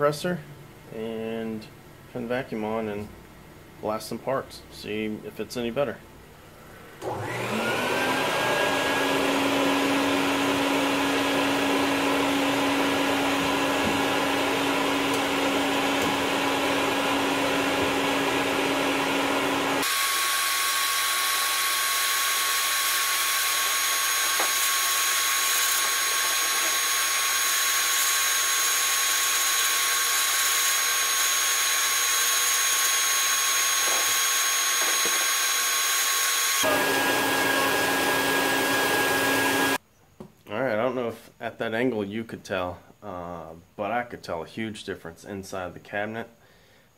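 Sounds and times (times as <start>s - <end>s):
vacuum motor whining: 7.0s - 39.8s.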